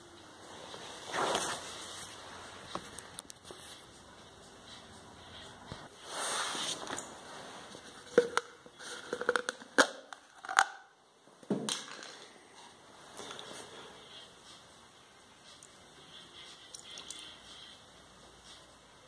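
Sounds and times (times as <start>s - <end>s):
plastic cups crinkling and clicking: 7.7s - 11.0s, 11.6s - 13.5s.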